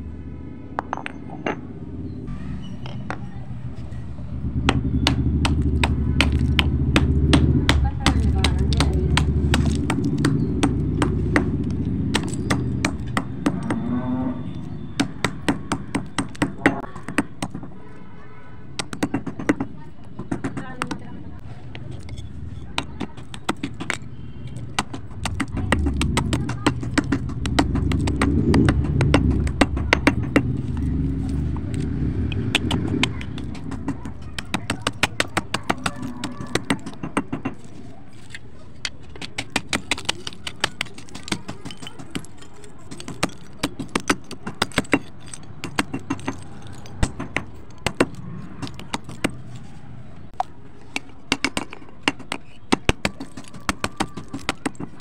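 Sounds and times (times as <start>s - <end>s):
low rumble: 1.6s - 15.0s, 23.9s - 33.8s
stone pestle crushing dry clay: 4.4s - 13.9s, 14.5s - 17.8s, 18.7s - 55.0s.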